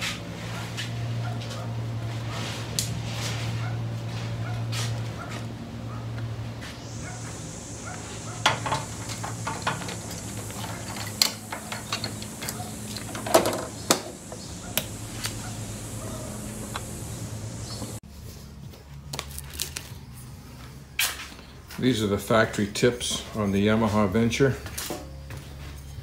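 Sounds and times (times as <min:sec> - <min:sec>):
steady low hum: 0:00.0 - 0:19.1
metal clinks and knocks: 0:08.4 - 0:14.2.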